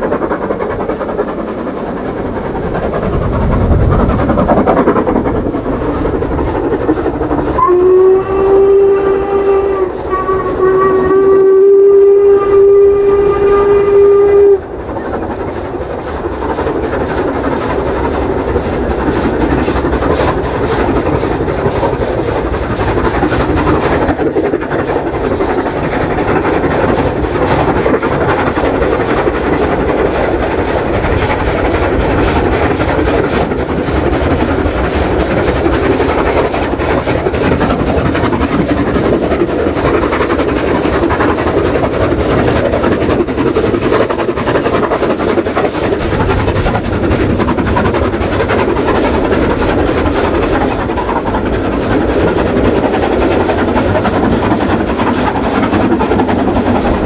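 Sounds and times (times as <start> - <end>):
train running: 0.0 - 57.0
wind blowing across microphone: 1.2 - 7.6
steam locomotive whistle: 7.5 - 14.7.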